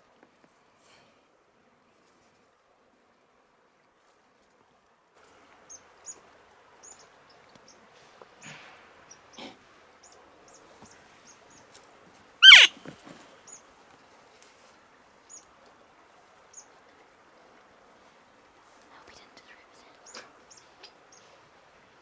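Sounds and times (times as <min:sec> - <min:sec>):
elk call sliding down in pitch: 0:12.4 - 0:12.7
faint high chirps: 0:12.4 - 0:12.7.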